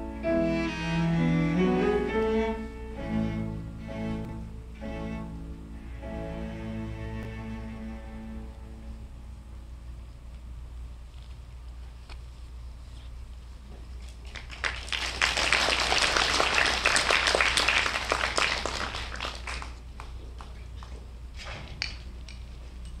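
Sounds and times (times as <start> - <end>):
audience applauding: 14.2 - 21.0.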